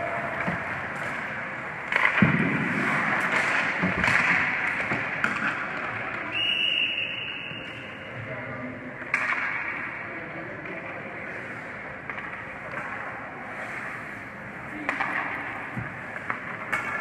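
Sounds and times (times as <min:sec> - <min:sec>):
skates scraping ice: 0:00.0 - 0:06.3, 0:10.5 - 0:17.0
sticks and puck clacking: 0:00.0 - 0:06.4, 0:09.0 - 0:17.0
referee whistle: 0:06.3 - 0:08.0.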